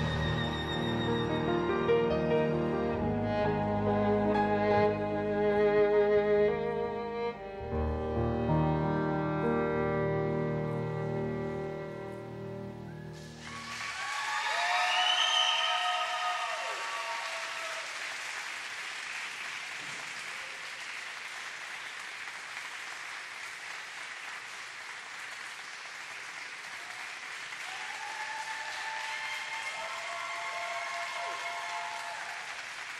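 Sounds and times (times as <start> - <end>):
program music: 7.4 - 13.4
audience applauding: 13.0 - 32.9.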